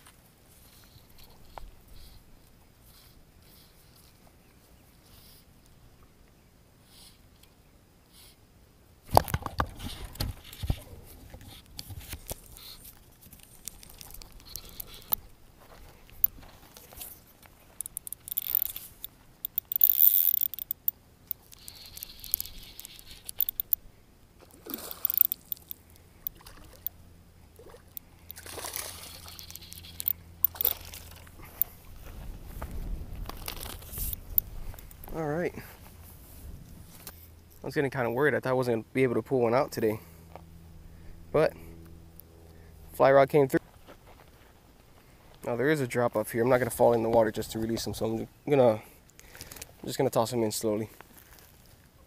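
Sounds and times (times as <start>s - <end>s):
splash into water: 28.4s - 29.3s.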